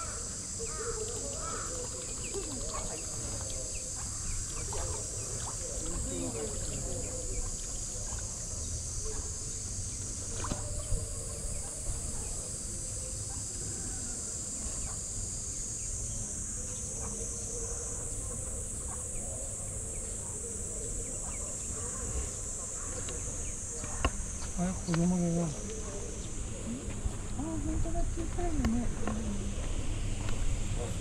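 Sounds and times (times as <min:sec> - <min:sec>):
high-pitched insect drone: 0:00.0 - 0:31.0.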